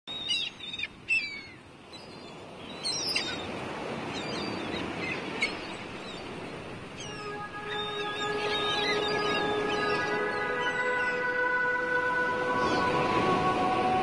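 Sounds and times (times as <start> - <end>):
gulls crying: 4.2 - 14.0.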